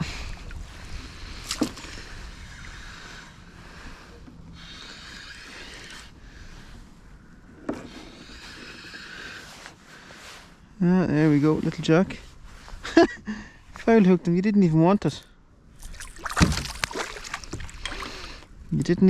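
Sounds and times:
water lapping against kayak hull: 0:00.0 - 0:10.2, 0:15.7 - 0:18.7.

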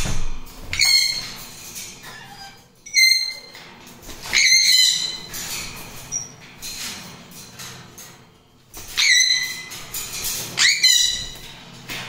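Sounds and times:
parrots squawking: 0:00.7 - 0:03.6, 0:04.2 - 0:05.3, 0:08.8 - 0:09.8, 0:10.5 - 0:11.6.

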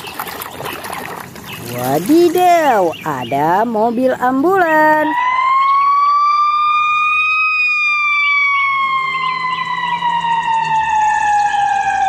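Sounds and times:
ambulance siren wailing: 0:05.1 - 0:12.0.

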